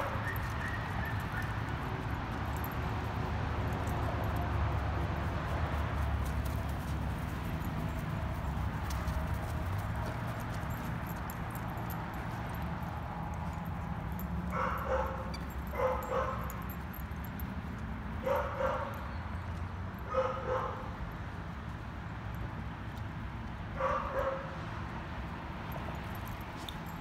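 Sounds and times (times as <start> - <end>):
dog barking: 14.5 - 16.5, 18.2 - 19.0, 20.1 - 20.9, 23.8 - 24.6.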